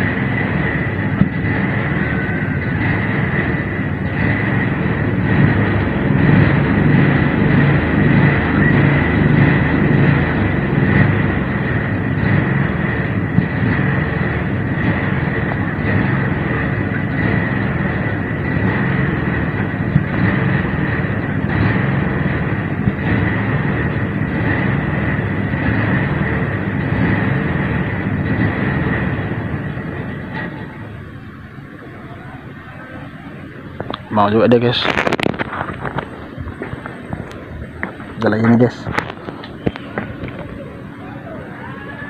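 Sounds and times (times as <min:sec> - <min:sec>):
motor drone with high whine: 0:00.0 - 0:42.0.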